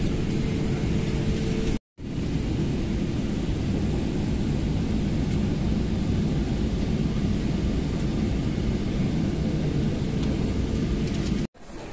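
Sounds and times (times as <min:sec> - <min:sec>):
airliner cabin low rumble: 0:00.0 - 0:11.9.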